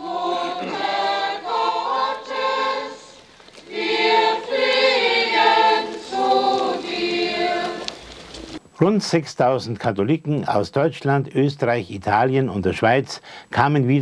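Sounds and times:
crowd singing a hymn: 0.0s - 8.6s.

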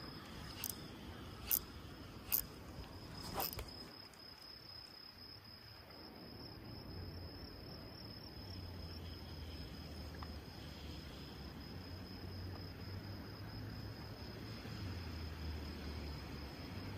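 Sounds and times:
insect trilling: 0.0s - 4.0s.

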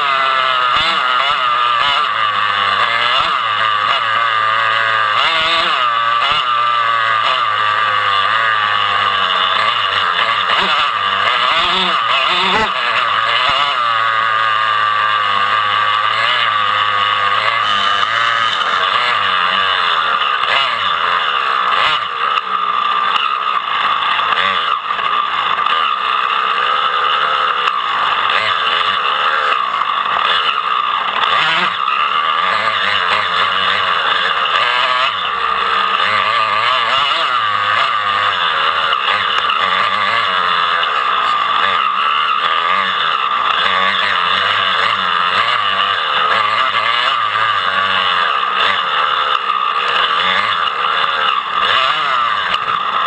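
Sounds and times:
dirt bike engines revving: 0.0s - 53.0s.

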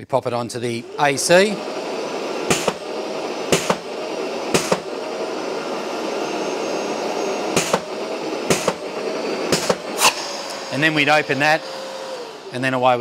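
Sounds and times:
dust extractor suction noise: 0.5s - 13.0s
sharp air blast pops: 2.5s - 2.9s, 3.5s - 3.9s, 4.5s - 4.9s, 7.5s - 7.9s, 8.5s - 8.9s, 9.5s - 10.6s.

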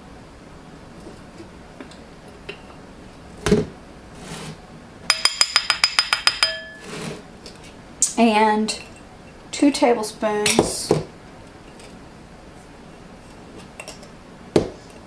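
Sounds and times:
spoon clinking on ceramic bowl: 5.1s - 6.9s.

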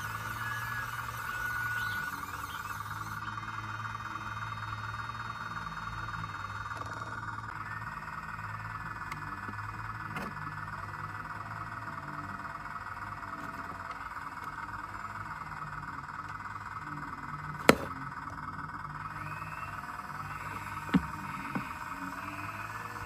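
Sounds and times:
high trilling animal chorus: 0.0s - 9.4s, 19.1s - 23.0s
low hum: 0.0s - 23.0s.

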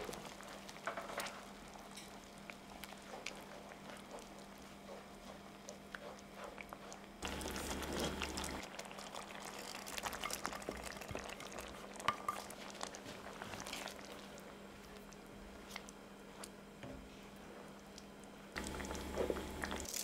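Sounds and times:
spatula stirring: 0.0s - 14.5s
sauce bubbling in a pan: 0.0s - 16.0s, 17.8s - 19.9s.

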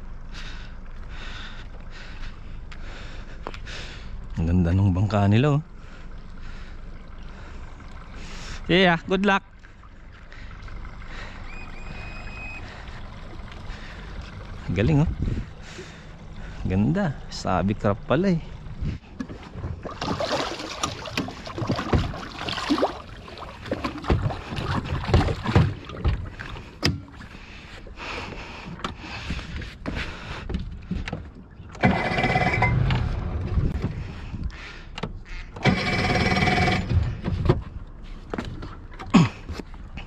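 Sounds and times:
steady humming noise: 0.0s - 40.0s
hinged seat lifting: 29.8s - 34.2s
gear knocking and clattering: 35.0s - 39.7s.

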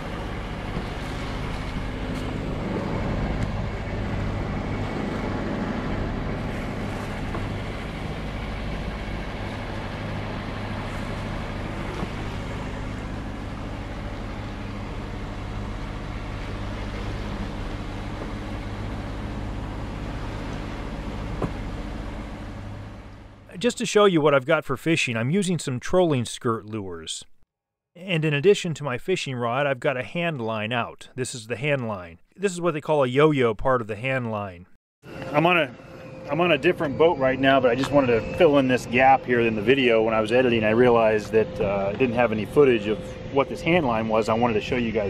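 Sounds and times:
boat inboard engine running: 0.0s - 23.7s, 35.0s - 45.0s
water and wind rushing past hull: 0.0s - 26.2s, 35.1s - 45.0s.

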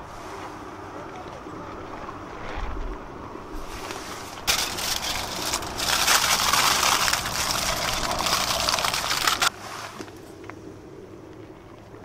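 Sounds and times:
aluminium foil crinkling: 4.4s - 9.5s.

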